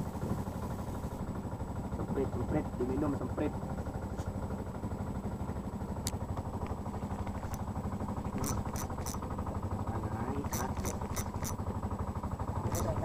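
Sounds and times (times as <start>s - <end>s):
boat engine idling: 0.0s - 13.0s
sharp ticks: 6.0s - 7.7s, 8.3s - 9.3s, 10.3s - 11.7s, 12.6s - 13.0s.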